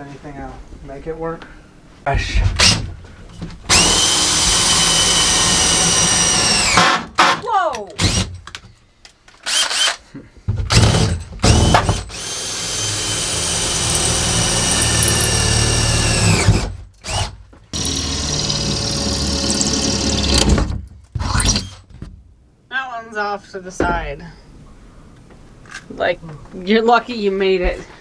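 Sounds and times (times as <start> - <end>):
cordless drill boring: 3.7 - 6.8, 9.4 - 10.0, 10.7 - 20.6.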